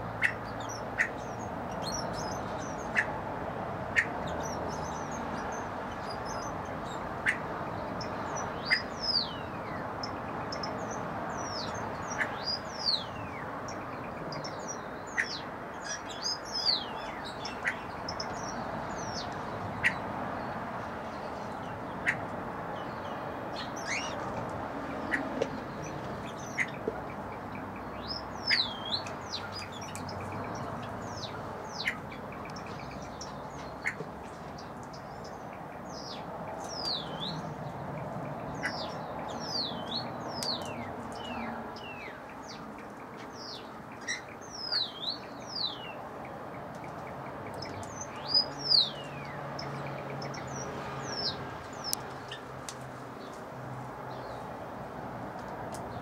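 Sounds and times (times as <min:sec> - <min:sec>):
small birds chirping: 0:00.0 - 0:56.0
birds whistling: 0:28.0 - 0:32.0.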